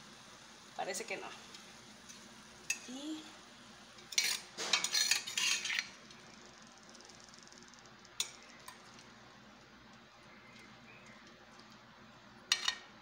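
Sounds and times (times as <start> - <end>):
spoon scraping metal pan: 4.1 - 5.9.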